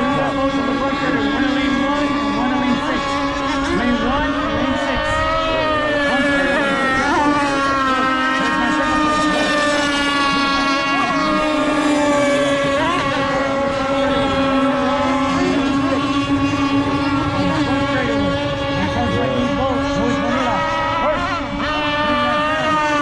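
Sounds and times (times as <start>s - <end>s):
model boat engines buzzing: 0.0s - 23.0s.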